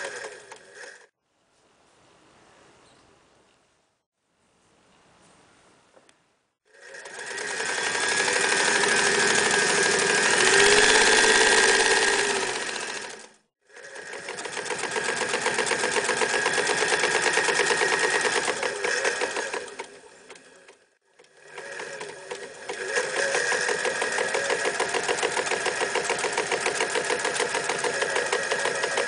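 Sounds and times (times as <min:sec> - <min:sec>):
sewing machine stitching: 0:00.0 - 0:01.1, 0:06.7 - 0:29.0.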